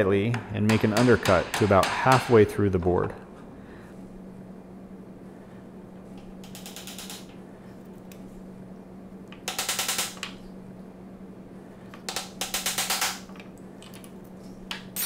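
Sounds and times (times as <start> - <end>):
mallet tapping chisel: 0.3 - 2.4.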